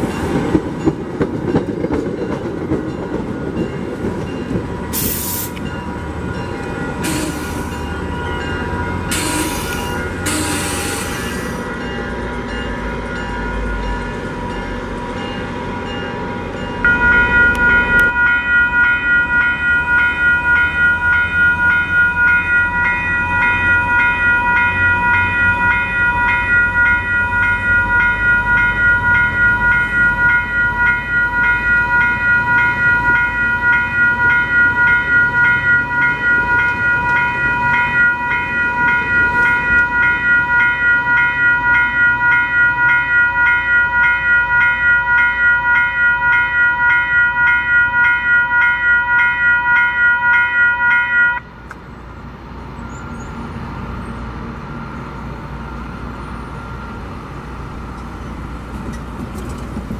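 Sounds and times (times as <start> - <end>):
crossing warning bell clanging: 0.0 - 59.9
train rumbling on rails: 0.0 - 59.9.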